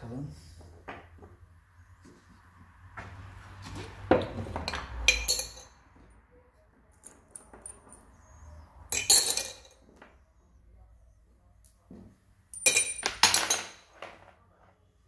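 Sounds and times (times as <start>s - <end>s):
metal tools clinking and clattering: 4.7s - 5.7s, 8.9s - 9.8s, 12.5s - 14.2s.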